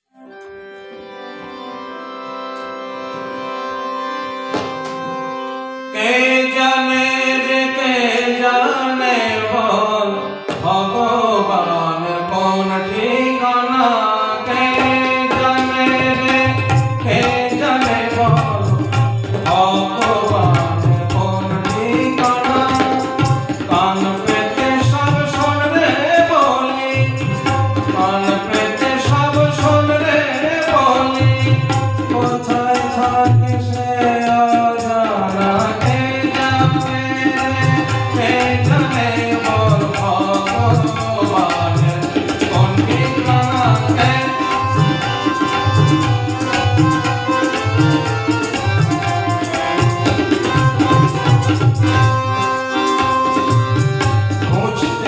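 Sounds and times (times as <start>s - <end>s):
harmonium chords: 0.0s - 55.0s
tabla drumming: 4.5s - 5.3s, 10.4s - 11.0s, 14.5s - 55.0s
man singing: 5.9s - 55.0s.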